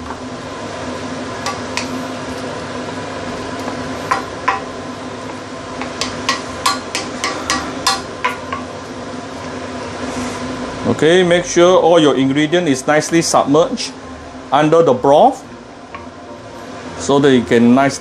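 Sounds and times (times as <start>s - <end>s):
wooden spatula knocking a wok: 3.7s - 4.8s, 5.7s - 8.7s.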